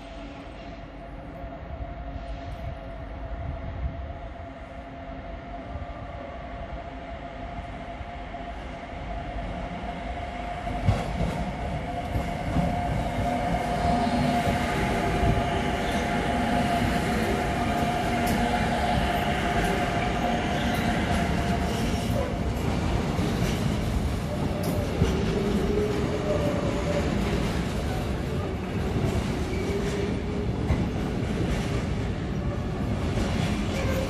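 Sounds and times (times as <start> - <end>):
locomotive whine: 0.0 - 22.5
freight train rumble: 0.0 - 34.0.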